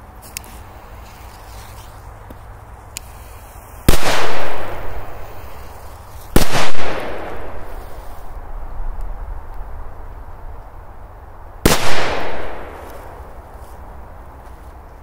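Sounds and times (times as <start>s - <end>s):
firecracker bangs with echo: 3.9s - 5.4s, 6.3s - 7.8s, 11.7s - 13.0s.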